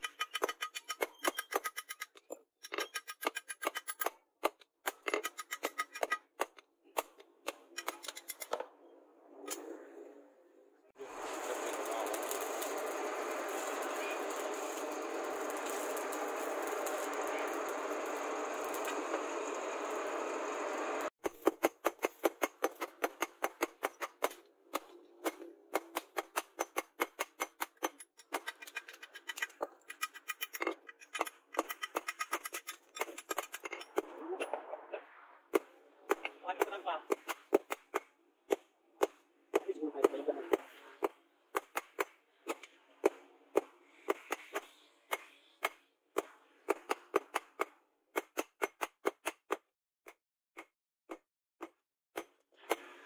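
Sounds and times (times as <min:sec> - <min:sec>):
forge fire air blast hiss: 0:11.0 - 0:17.5.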